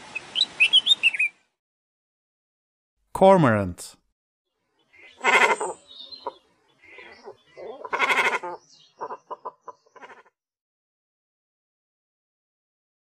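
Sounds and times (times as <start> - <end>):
cormorant calling: 4.8 - 10.4.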